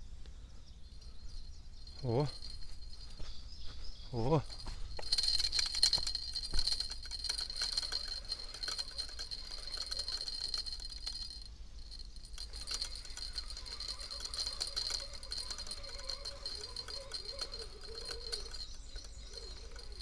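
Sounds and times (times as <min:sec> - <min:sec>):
fishing reel rattling whirr: 0:01.3 - 0:03.2, 0:04.9 - 0:20.0.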